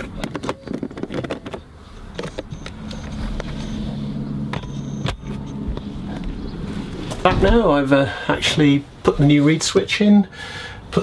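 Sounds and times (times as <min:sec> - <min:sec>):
plastic clicks and knocks: 0:00.0 - 0:02.8
steady low hum: 0:01.0 - 0:09.4.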